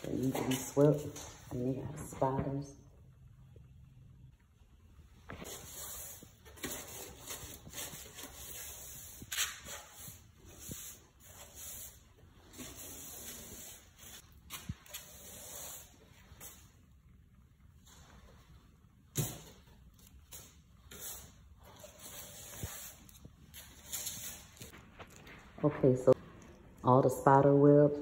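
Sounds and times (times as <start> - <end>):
broom sweeping concrete floor: 0.0 - 2.6, 5.3 - 16.8, 19.2 - 24.8.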